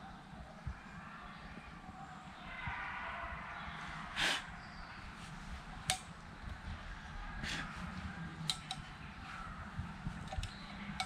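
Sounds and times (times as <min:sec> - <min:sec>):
faint low background noise: 0:00.0 - 0:11.0
quick clicks: 0:08.4 - 0:09.0.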